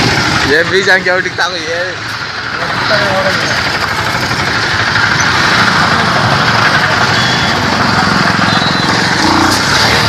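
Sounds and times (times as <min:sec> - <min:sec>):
road noise: 0:00.0 - 0:10.0
small vehicle engine running: 0:00.0 - 0:10.0
wind: 0:00.0 - 0:10.0.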